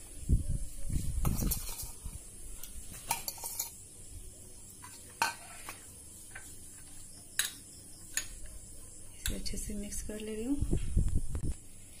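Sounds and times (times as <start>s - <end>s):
spoon stirring chocolate in bowl: 1.1s - 3.8s, 4.7s - 10.3s.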